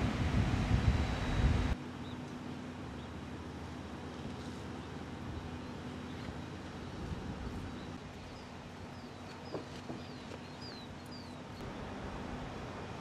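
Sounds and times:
bird chirping: 7.6 - 11.9.

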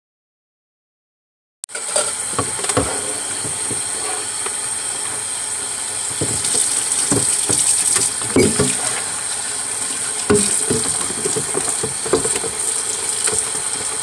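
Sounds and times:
plastic tub clunking: 1.8 - 5.2, 6.0 - 14.0
tap water splashing into sink: 6.0 - 14.0.

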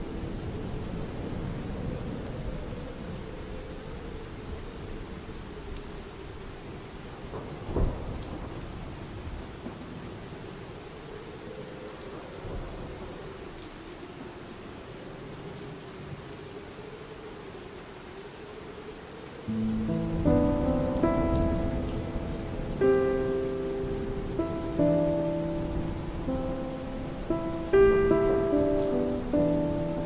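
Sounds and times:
steady rainfall: 0.0 - 30.0
thunder rumble: 19.5 - 30.0.

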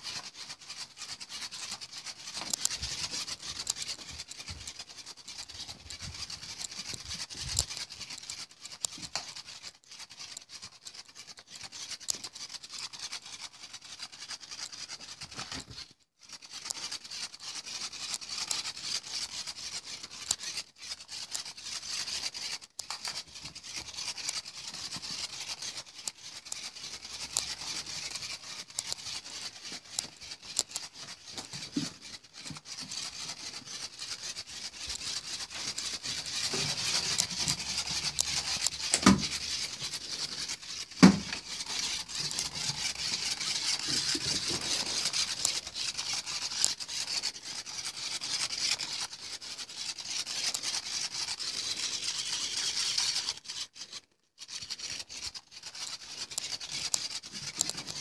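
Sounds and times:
cat pawing toy rustling: 23.0 - 47.8.

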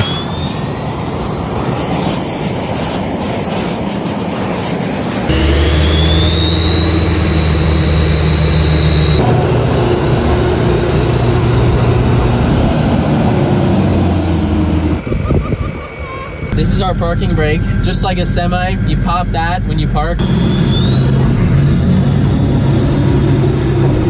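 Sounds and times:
high whine: 4.8 - 24.0
diesel truck engines running: 5.3 - 24.0.

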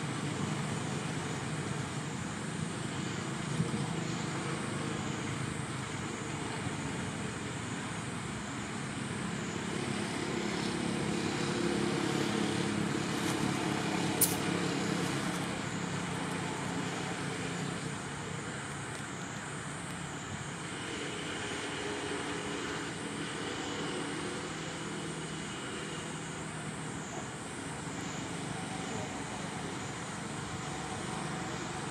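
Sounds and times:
distant traffic hum: 0.0 - 31.9
sharp click: 14.2 - 14.4.

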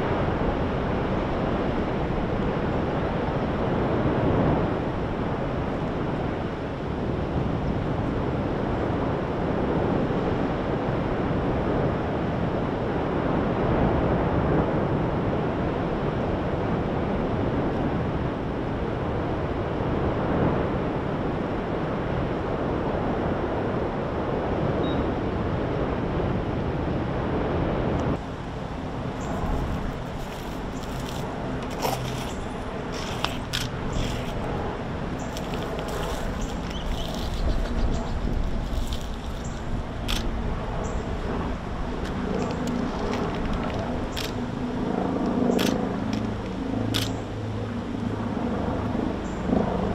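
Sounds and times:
lava fountain roaring: 25.6 - 49.7.

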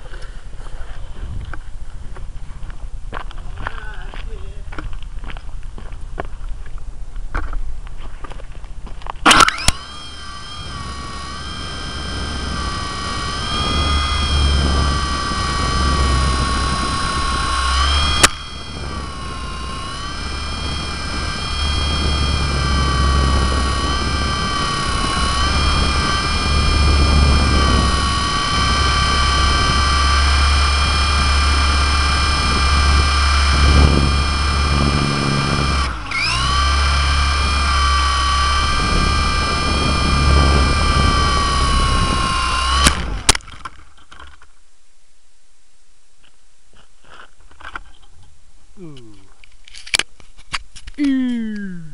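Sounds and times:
rc helicopter motor whine: 9.0 - 44.4
low rumble: 9.5 - 43.3.

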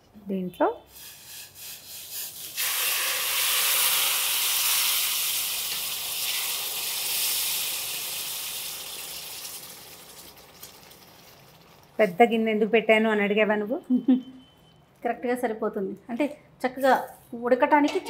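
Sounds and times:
water sizzling in hot pan: 0.9 - 12.0.

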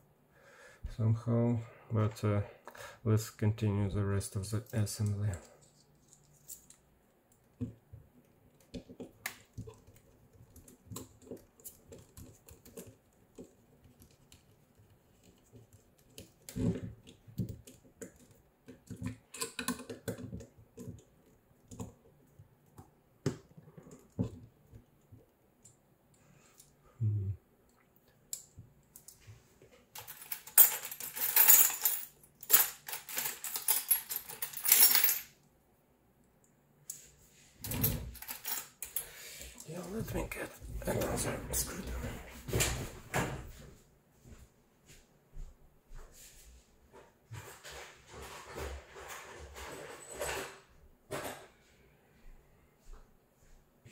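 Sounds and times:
small parts clicking and tapping: 8.5 - 22.9
metal tools clinking: 30.0 - 35.3, 37.7 - 39.0.

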